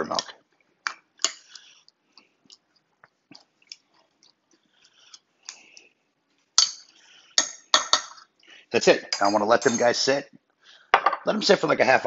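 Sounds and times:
wet squishes: 0:00.6 - 0:05.9.

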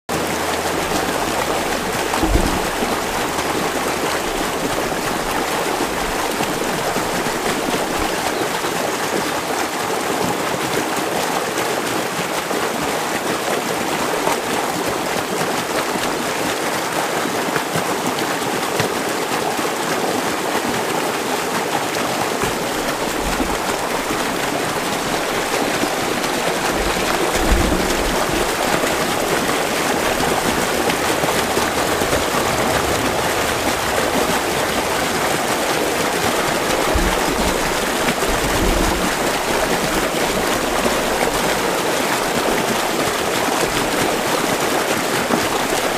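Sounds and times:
low bumps: 0:00.1 - 0:08.2, 0:22.4 - 0:41.6
stream rushing over rocks: 0:00.1 - 0:45.9.

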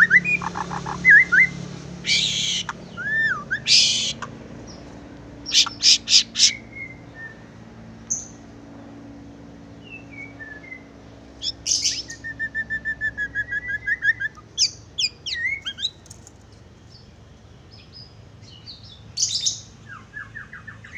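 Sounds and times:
bird singing whistles: 0:00.0 - 0:04.3, 0:05.5 - 0:07.5, 0:09.8 - 0:16.0.

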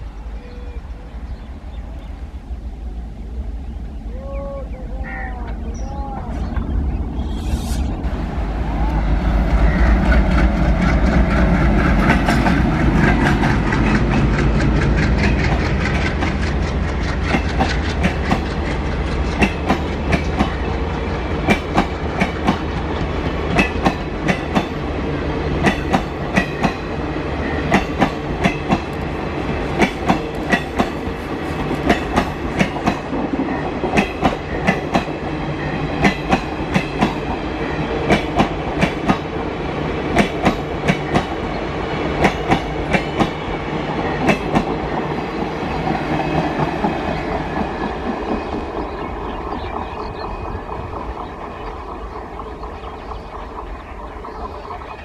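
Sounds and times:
train rolling rumble: 0:00.0 - 0:55.0
train wheels clattering: 0:09.4 - 0:24.9, 0:25.6 - 0:39.4, 0:40.0 - 0:53.4.

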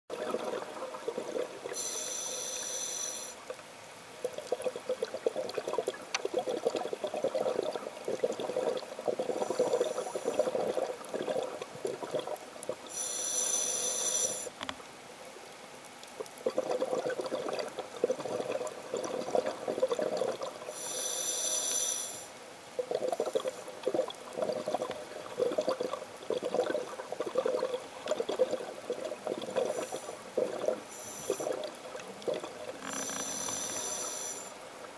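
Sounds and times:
scuba regulator hissing inhalations: 0:01.7 - 0:03.4, 0:09.3 - 0:10.6, 0:12.9 - 0:14.6, 0:20.7 - 0:22.4, 0:29.6 - 0:31.6, 0:32.9 - 0:34.6
gurgling exhaust bubbles: 0:04.3 - 0:12.8, 0:16.4 - 0:20.6, 0:22.8 - 0:33.2.

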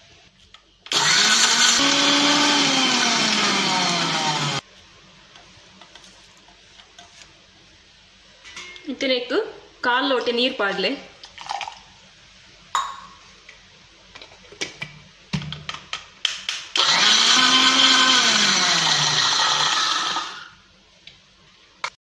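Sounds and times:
mixer grinder motor grinding: 0:00.9 - 0:04.6, 0:16.8 - 0:20.5.

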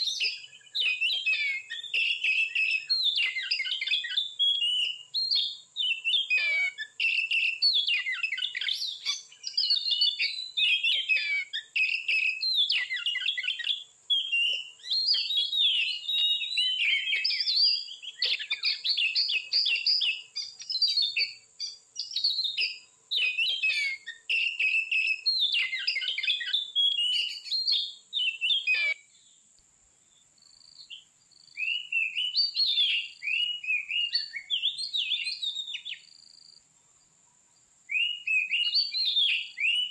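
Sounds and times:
bird singing whistled phrases: 0:00.0 - 0:29.1, 0:30.8 - 0:36.1, 0:37.9 - 0:39.9
high-pitched insect hum: 0:00.0 - 0:39.9.

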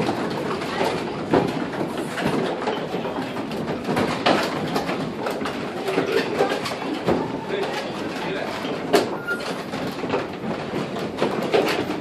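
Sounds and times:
mill machinery rumbling: 0:00.0 - 0:12.0
wooden gears clattering: 0:00.0 - 0:12.0.

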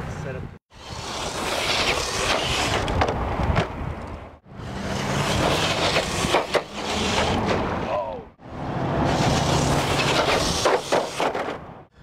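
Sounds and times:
toy car tyres scrabbling on rock: 0:00.8 - 0:04.2, 0:04.8 - 0:07.7, 0:09.1 - 0:11.6.

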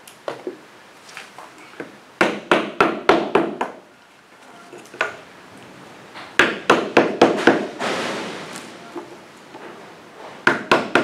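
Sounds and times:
hammer knocking on wood: 0:02.2 - 0:03.8, 0:06.4 - 0:07.8, 0:10.4 - 0:11.0.

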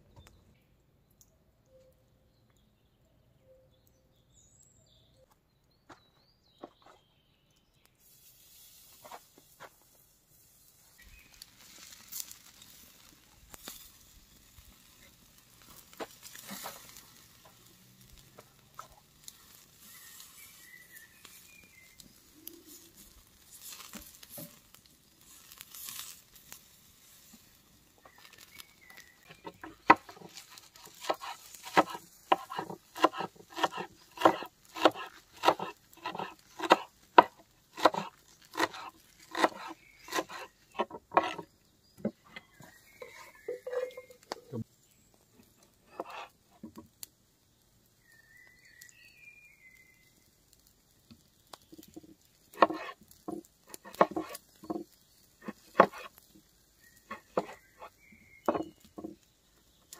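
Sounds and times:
birds chirping: 0:00.0 - 0:08.0, 0:09.0 - 0:11.7, 0:12.3 - 0:25.4, 0:26.4 - 0:50.4, 0:51.5 - 0:59.9
wood fire crackling and hissing: 0:07.5 - 0:59.9
fire snapping: 0:11.0 - 0:41.5, 0:49.8 - 0:59.9.

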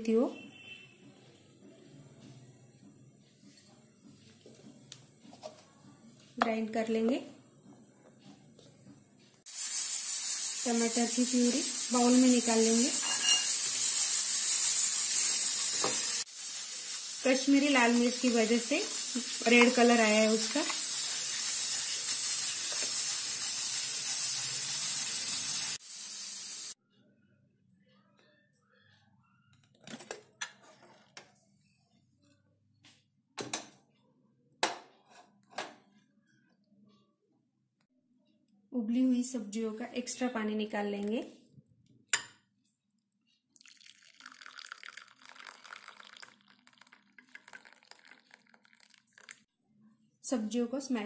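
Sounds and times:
loud steady hiss: 0:09.5 - 0:26.8
water pouring into bowl: 0:43.6 - 0:49.4.

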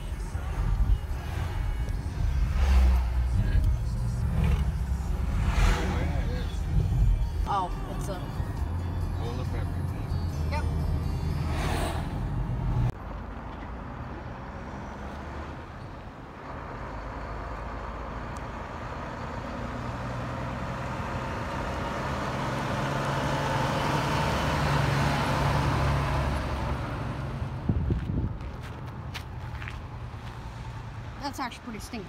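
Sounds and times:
diesel truck driving on gravel: 0:16.2 - 0:32.0.

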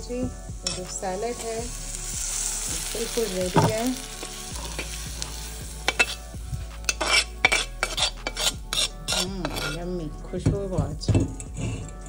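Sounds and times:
metal spoon scraping metal pan: 0:00.6 - 0:01.0, 0:05.8 - 0:10.1, 0:11.0 - 0:12.0.

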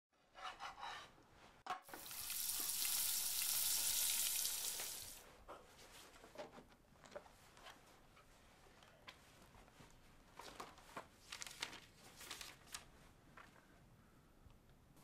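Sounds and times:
sandwich sizzling in a frying pan: 0:01.9 - 0:05.2.

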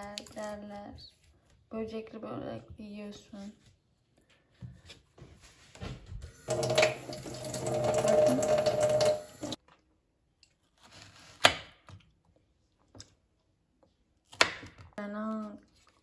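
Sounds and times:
tap running into metal sink: 0:06.4 - 0:09.6.

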